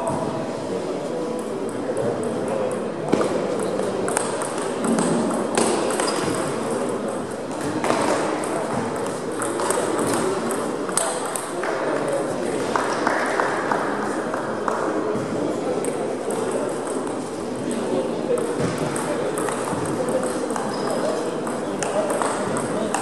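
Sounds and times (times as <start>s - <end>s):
murmur of voices: 0.0s - 23.0s
table tennis balls clicking: 1.7s - 11.8s, 15.8s - 23.0s.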